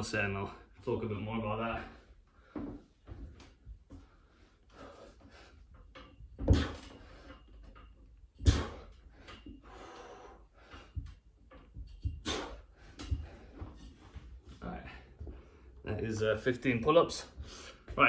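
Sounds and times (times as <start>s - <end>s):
man breathing hard: 3.9s - 5.7s, 8.4s - 11.2s, 11.9s - 13.9s, 17.4s - 17.9s
sharp exhales: 12.2s - 12.7s.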